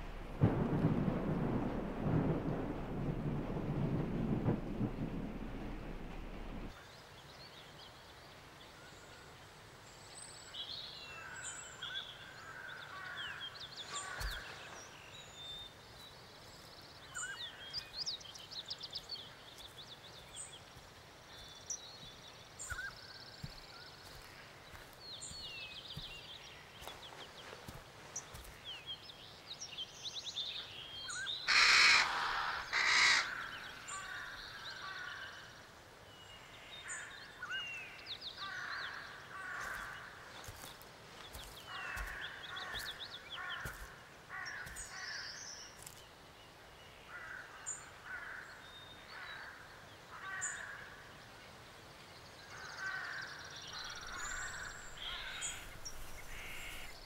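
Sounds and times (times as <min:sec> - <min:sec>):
birds chirping and calling: 0:16.6 - 0:29.0, 0:30.9 - 0:35.4, 0:52.5 - 0:57.0.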